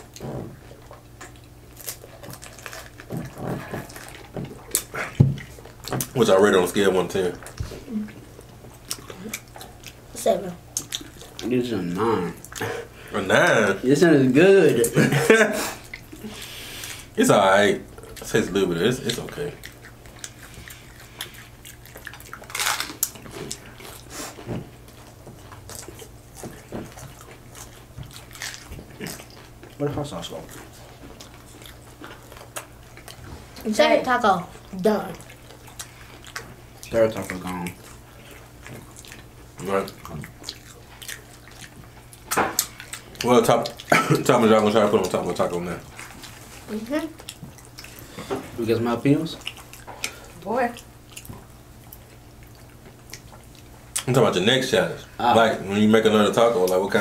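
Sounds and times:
crunching taco shells: 0.0s - 7.6s, 18.0s - 33.2s
people chewing crunchy food: 0.0s - 57.0s
slurping and swallowing drink: 2.5s - 5.2s.

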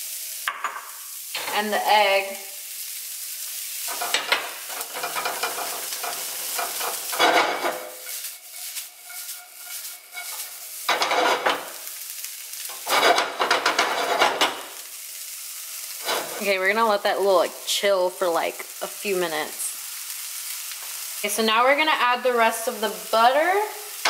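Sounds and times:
food sizzling in a skillet: 0.0s - 24.0s
spatula scraping a skillet: 3.8s - 14.9s, 15.8s - 16.6s.

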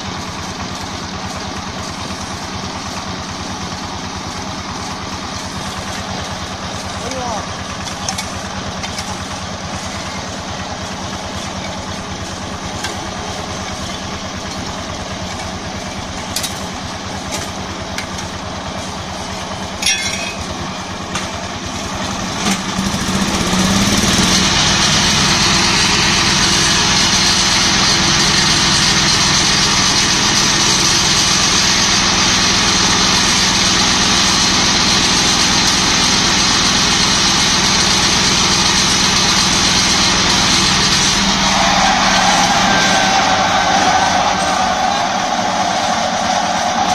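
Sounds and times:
small diesel engine running: 0.0s - 46.9s
sharp metal clanks: 19.8s - 21.3s.

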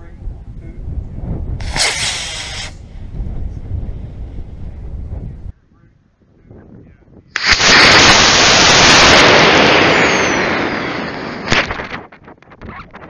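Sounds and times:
rocket motor roaring: 1.6s - 3.2s, 7.4s - 11.4s.

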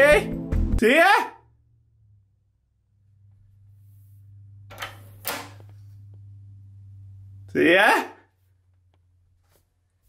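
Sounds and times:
man calling a name: 0.0s - 1.5s, 7.5s - 8.3s.

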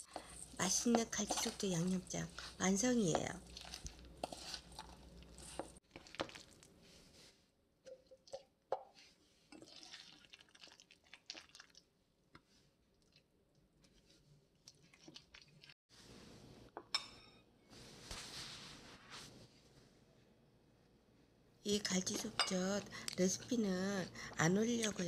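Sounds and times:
paste squishing in metal bowl: 0.0s - 6.7s, 7.9s - 11.9s.

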